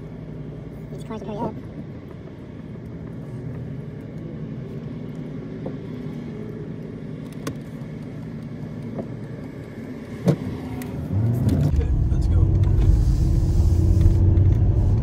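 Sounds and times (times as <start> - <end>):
low engine rumble: 0.0 - 15.0
road traffic passing: 0.0 - 15.0.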